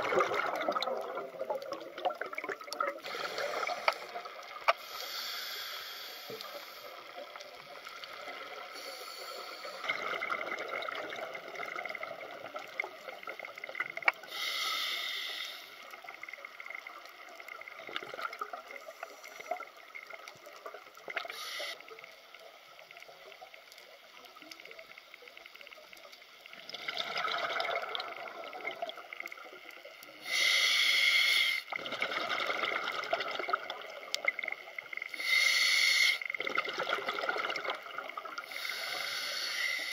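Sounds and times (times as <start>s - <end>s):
underwater regulator bubbling exhalations: 0.0s - 4.8s, 36.4s - 38.5s
faint crackling hiss: 0.0s - 39.9s.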